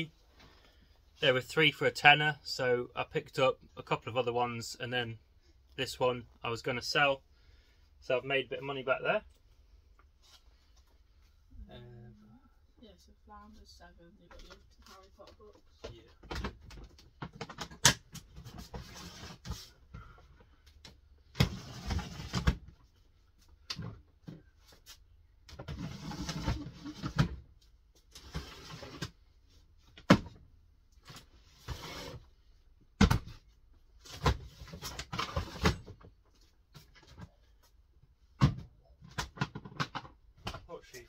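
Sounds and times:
plastic boxes scraping and knocking: 0:15.8 - 0:20.0, 0:21.2 - 0:22.8, 0:25.5 - 0:27.4, 0:33.0 - 0:37.4.

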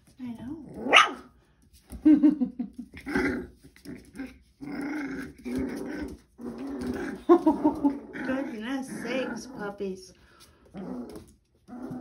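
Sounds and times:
puppies growling: 0:02.8 - 0:12.0.

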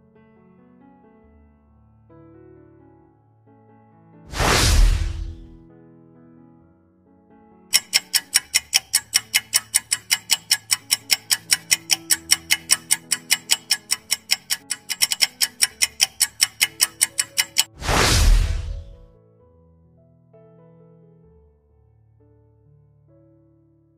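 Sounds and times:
loud swoosh: 0:04.3 - 0:05.6, 0:17.7 - 0:19.1
clock ticking: 0:04.4 - 0:05.6, 0:07.8 - 0:19.1.

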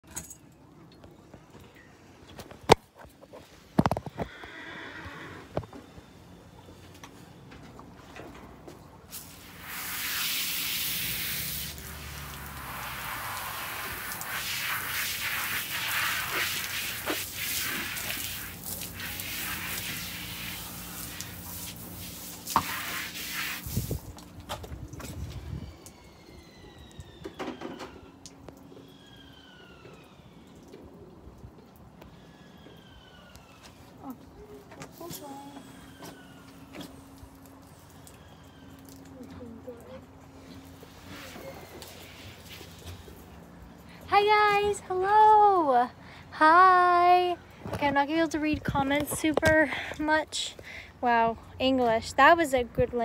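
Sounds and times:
horse whinnying: 0:04.2 - 0:05.6
hose spraying water on horse: 0:09.1 - 0:26.0, 0:34.9 - 0:39.1, 0:40.4 - 0:43.3.

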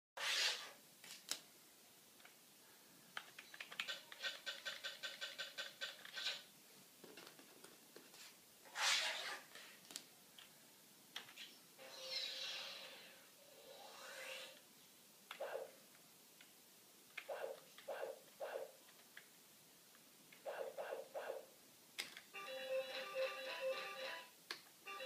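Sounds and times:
keyboard keys clicking: 0:03.2 - 0:06.4.

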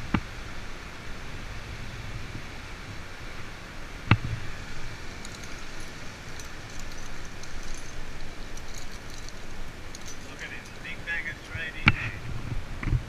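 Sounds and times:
rustling: 0:04.2 - 0:12.4.

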